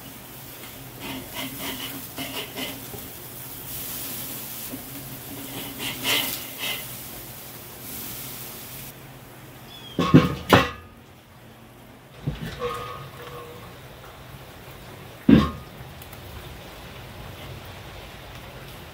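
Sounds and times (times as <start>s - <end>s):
metal spatula scraping grill grate: 0.0s - 8.9s, 12.2s - 13.8s
meat sizzling: 0.0s - 9.0s.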